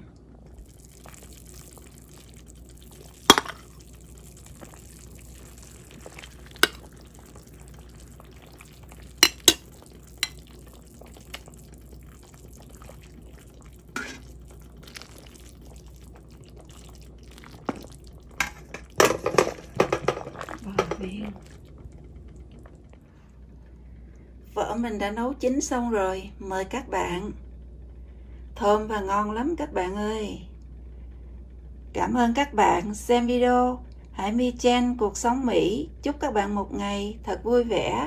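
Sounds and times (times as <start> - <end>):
faint low hum: 0.0 - 38.0
ladle clinking against pot and bowl: 9.2 - 10.4.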